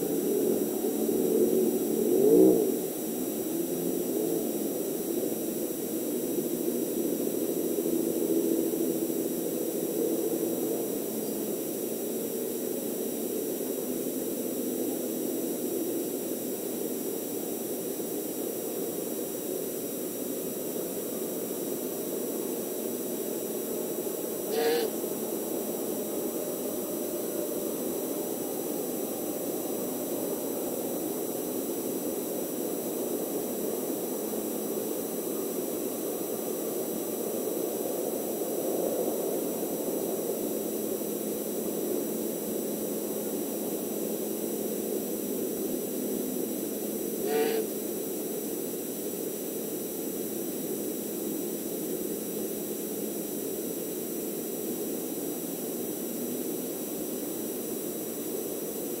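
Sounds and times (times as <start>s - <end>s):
brief pitched call: 24.5s - 25.0s, 47.2s - 47.7s
high electronic whine: 24.5s - 25.0s, 47.2s - 47.8s.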